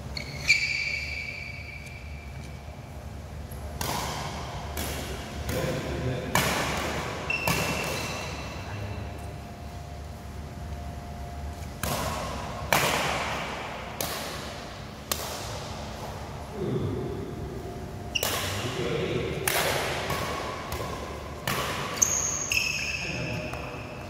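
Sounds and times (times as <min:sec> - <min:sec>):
shoes squeaking on court floor: 0:00.0 - 0:02.9, 0:07.2 - 0:09.2, 0:21.8 - 0:24.0
rackets smacking shuttlecock: 0:03.5 - 0:08.6, 0:11.6 - 0:16.2, 0:18.1 - 0:18.7, 0:19.4 - 0:23.7.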